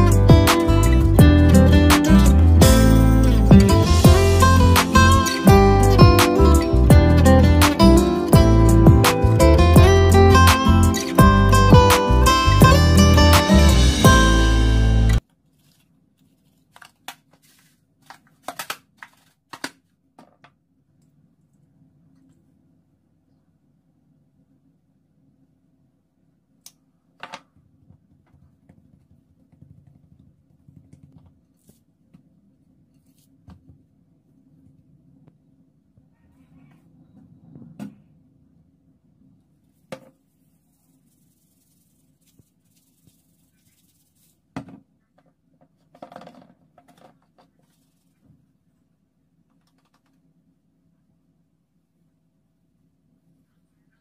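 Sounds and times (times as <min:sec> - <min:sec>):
hand rubbing meat: 0:40.3 - 0:44.5.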